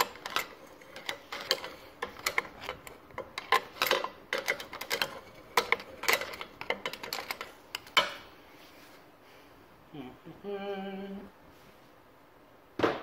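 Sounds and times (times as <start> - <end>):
metal rod clicking and scraping: 0.0 - 8.2.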